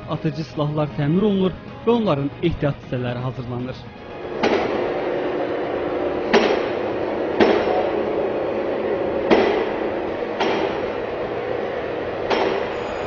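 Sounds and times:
machine humming: 3.8s - 13.0s
sharp metallic knocks: 4.4s - 4.9s, 6.2s - 8.3s, 9.1s - 11.1s, 12.2s - 13.0s.

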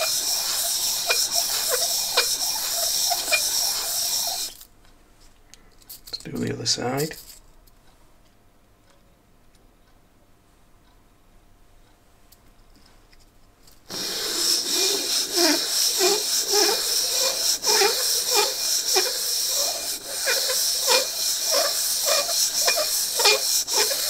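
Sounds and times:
piston ring rasping on abrasive paper: 0.0s - 4.7s, 13.9s - 24.0s.

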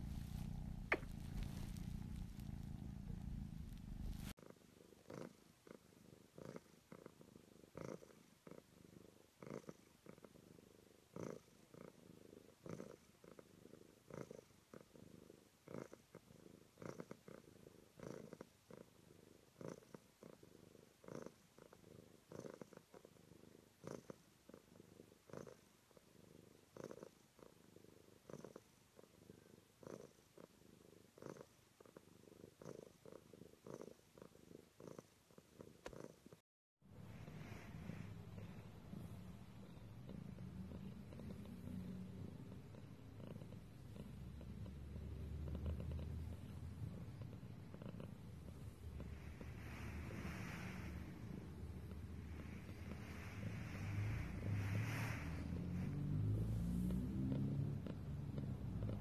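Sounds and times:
deep hum: 0.0s - 4.3s
cat purring softly: 0.0s - 59.0s.

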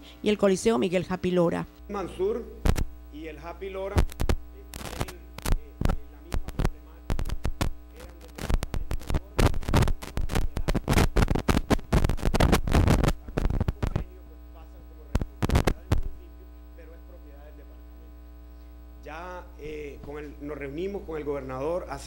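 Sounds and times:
electrical mains hum: 0.0s - 22.0s
crackling and popping: 2.6s - 3.1s, 3.9s - 14.2s, 15.1s - 16.3s.

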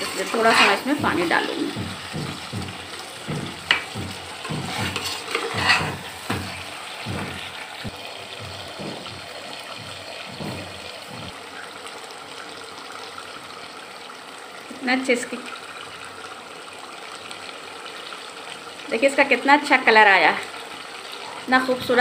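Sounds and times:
metal spoon scraping a pot: 0.0s - 1.8s, 3.7s - 6.6s
curry sizzling and bubbling: 0.0s - 22.0s.

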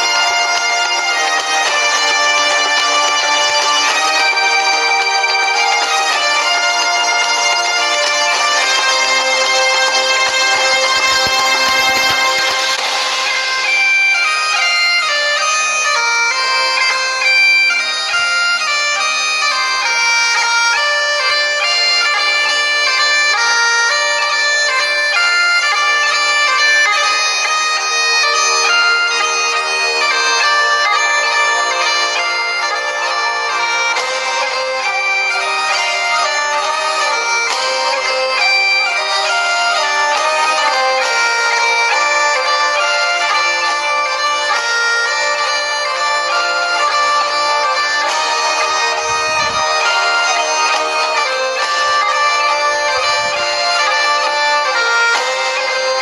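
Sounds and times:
melody over sustained drones: 0.0s - 17.2s.

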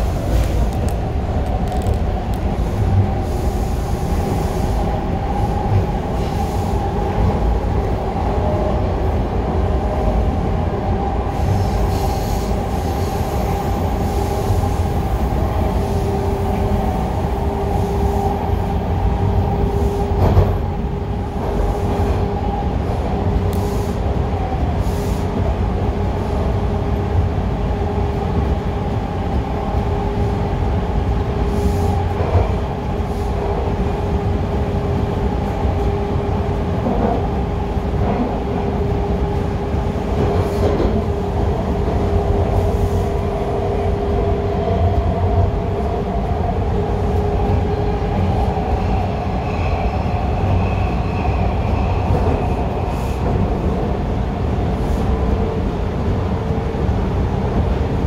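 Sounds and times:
subway car rumble and whine: 0.0s - 58.0s.

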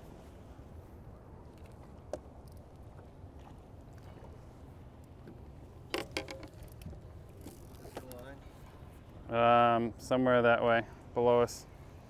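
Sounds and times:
low wind rumble: 0.0s - 12.0s
fishing gear clattering: 5.8s - 8.3s.

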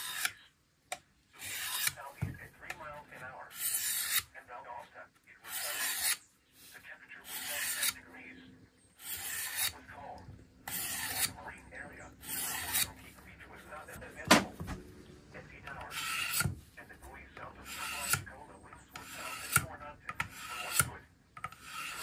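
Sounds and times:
knife scraping on sharpener: 0.0s - 0.4s, 1.4s - 2.0s, 3.5s - 4.3s, 5.4s - 6.2s, 7.2s - 8.0s, 9.0s - 9.8s, 10.7s - 11.4s, 12.2s - 13.0s, 15.9s - 16.5s, 17.6s - 18.2s, 18.9s - 22.0s.

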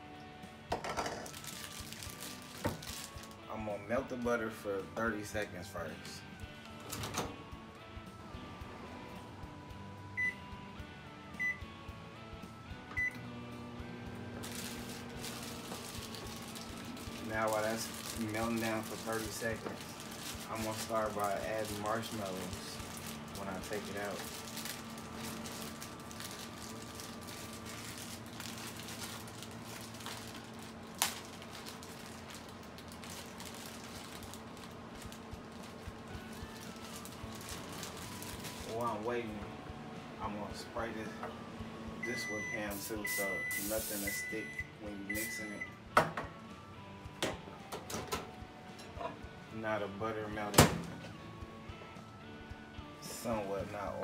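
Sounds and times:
microwave running hum: 0.0s - 54.0s
plastic bag rustling: 1.1s - 3.4s, 14.4s - 39.2s
microwave keypad beeping: 10.2s - 10.5s, 11.4s - 11.7s, 12.9s - 13.2s, 42.0s - 45.8s.

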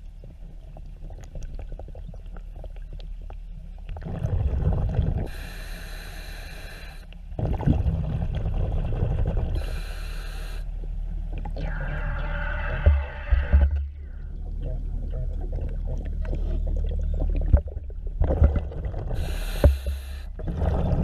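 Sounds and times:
exhaust bubbles rumbling: 3.9s - 5.6s, 7.3s - 9.9s, 11.1s - 21.0s
regulator hissing on inhale: 5.2s - 7.2s, 9.6s - 10.8s, 19.2s - 20.4s.

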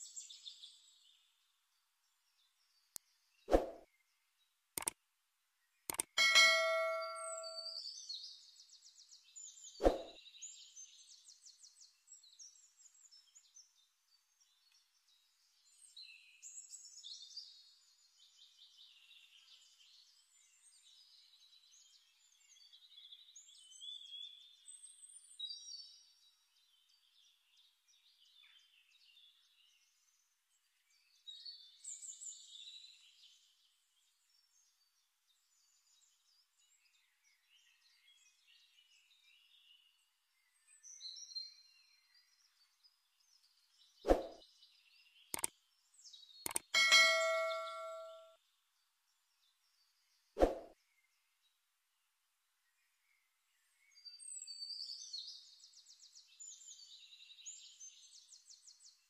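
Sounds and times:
birds chirping and trilling: 5.9s - 25.8s, 35.5s - 48.3s.

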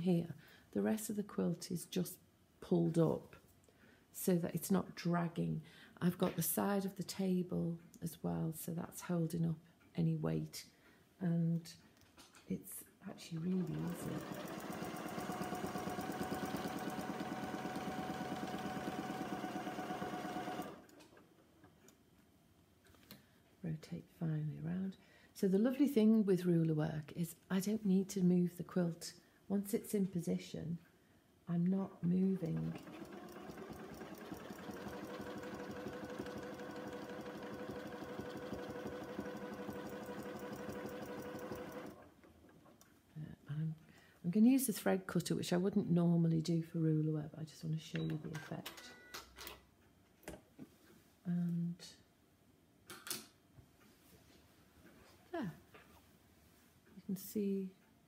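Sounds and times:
sewing machine stitching: 13.5s - 21.2s, 32.4s - 42.1s.

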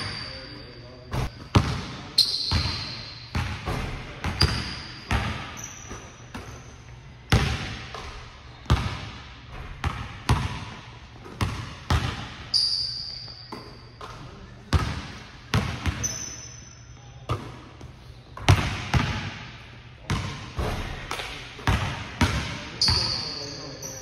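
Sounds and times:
sneakers squeaking on court: 0.0s - 19.4s, 20.1s - 24.0s
basketballs bouncing on wooden floor: 1.1s - 6.7s, 7.3s - 12.5s, 13.5s - 16.2s, 18.4s - 19.4s, 20.0s - 23.3s.

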